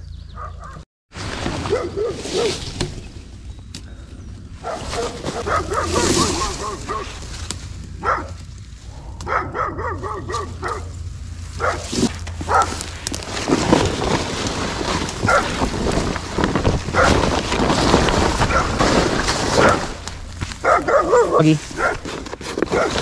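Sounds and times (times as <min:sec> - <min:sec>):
plastic tarp rustling and crinkling: 0:01.1 - 0:03.5, 0:04.6 - 0:07.8, 0:11.4 - 0:23.0
grass brushing underfoot: 0:01.1 - 0:03.6, 0:04.6 - 0:08.9, 0:10.0 - 0:23.0.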